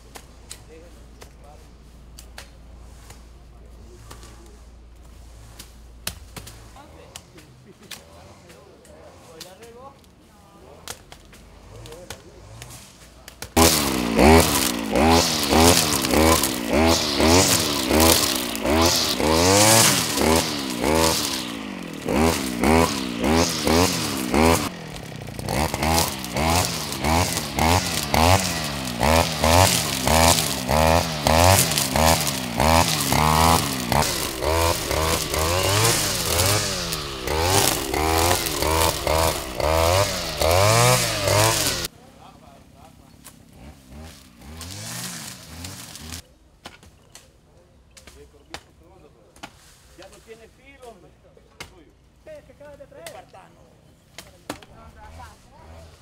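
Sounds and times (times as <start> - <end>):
string trimmer revving: 11.4 - 41.9, 43.4 - 46.2, 54.6 - 56.0.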